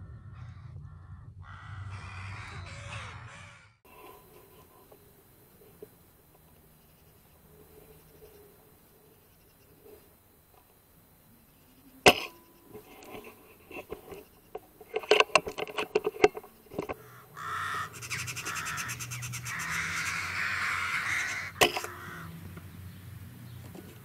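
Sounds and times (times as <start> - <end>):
clicks and knocks: 12.1 - 17.0
magpie chattering: 17.0 - 22.3.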